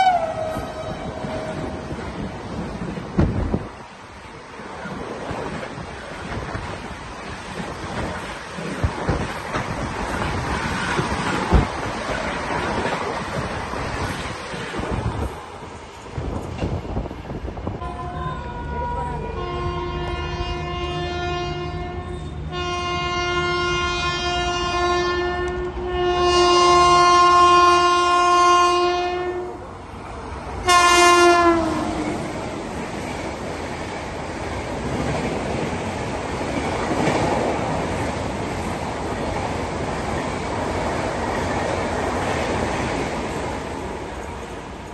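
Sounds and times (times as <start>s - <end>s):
train horn blasts: 0.0s - 1.9s, 17.8s - 29.6s, 30.6s - 32.2s
passing train rumble: 0.0s - 44.9s.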